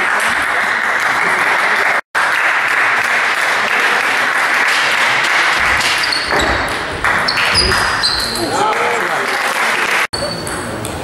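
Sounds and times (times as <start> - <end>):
spectators applauding: 0.0 - 10.1.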